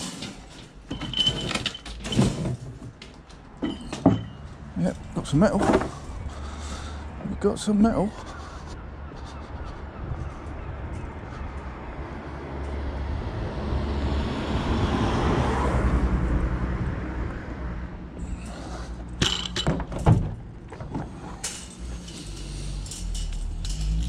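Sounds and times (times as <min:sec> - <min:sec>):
metal mesh panels clanking: 0:00.0 - 0:04.4, 0:19.2 - 0:24.0
vehicle passing: 0:04.6 - 0:19.2, 0:20.5 - 0:24.0.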